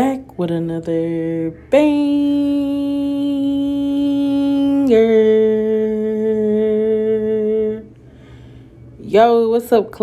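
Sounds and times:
woman singing long notes: 0.0s - 7.9s.

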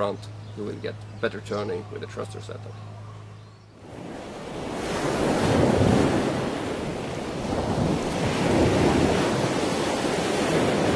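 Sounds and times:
ocean surf: 3.8s - 10.9s
wind noise: 3.8s - 10.9s.

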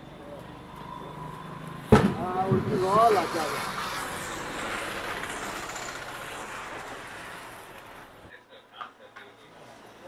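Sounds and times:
spinning firework hissing: 1.3s - 8.3s.

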